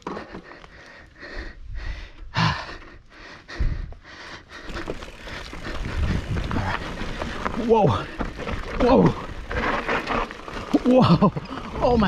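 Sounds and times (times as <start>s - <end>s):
person breathing hard: 0.0s - 7.5s
mountain bike rattling: 4.3s - 12.0s.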